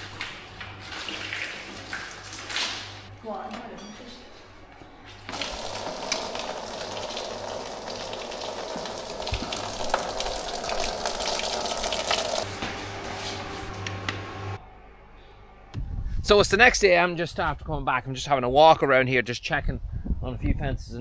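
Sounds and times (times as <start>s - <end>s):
water spraying and splashing: 0.0s - 3.1s, 5.3s - 12.5s
low hum: 12.3s - 17.2s.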